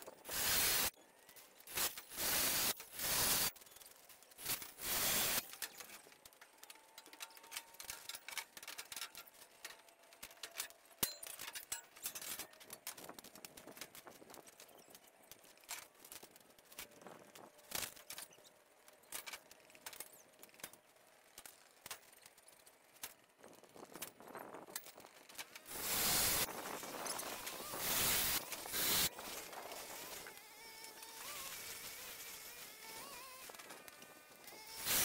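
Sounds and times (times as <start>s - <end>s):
metal parts clicking and clinking: 0.0s - 35.0s
power drill on steel: 0.3s - 0.9s, 1.7s - 3.5s, 4.4s - 5.6s, 25.7s - 35.0s.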